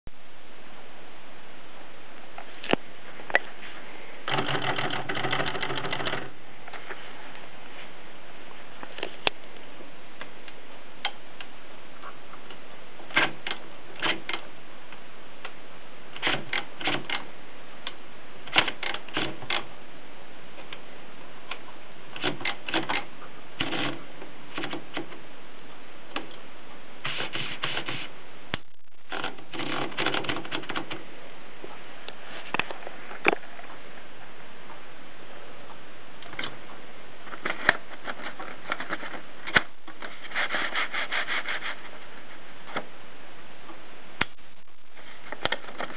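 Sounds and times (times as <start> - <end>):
steady hiss: 0.2 - 22.2, 23.1 - 28.8
manual typewriter clacking: 4.3 - 6.3, 13.1 - 14.4, 16.2 - 17.3, 18.5 - 19.7, 22.1 - 25.2, 29.1 - 31.0.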